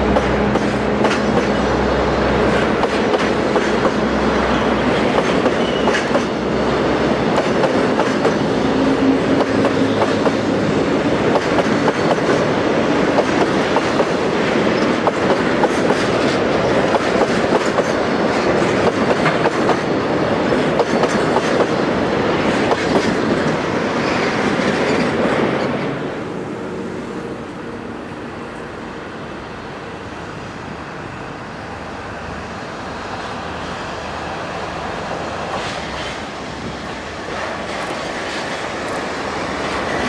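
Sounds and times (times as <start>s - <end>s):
train wheels clicking over rail joints: 0.0s - 1.7s, 2.5s - 25.8s, 35.4s - 40.0s
diesel locomotive running: 0.0s - 40.0s.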